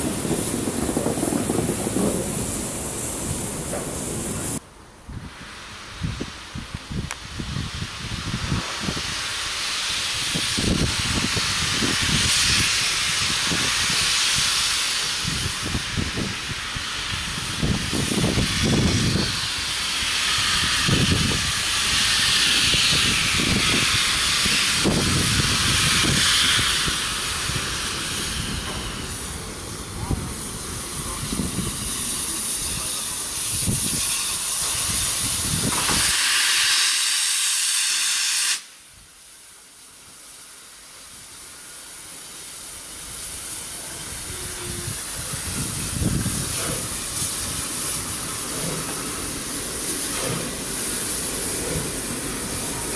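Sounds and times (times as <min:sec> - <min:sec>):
locomotive rumble: 0:00.0 - 0:04.6
steam locomotive chuffing: 0:00.0 - 0:04.6, 0:07.7 - 0:52.9
steam hissing from cylinders: 0:00.0 - 0:52.9.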